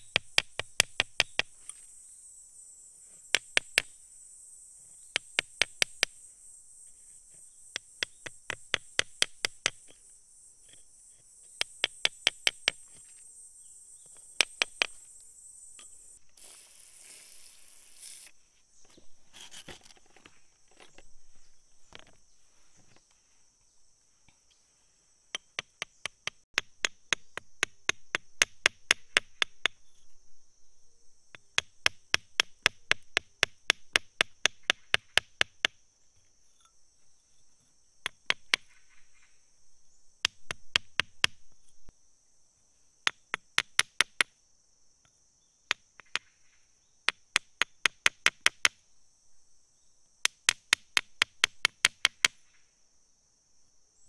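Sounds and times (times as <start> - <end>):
metal pick tapping stone: 0.0 - 1.8, 7.7 - 10.0, 11.5 - 13.1, 14.0 - 15.0, 25.3 - 30.0, 38.0 - 38.8
insects chirring: 0.0 - 54.0.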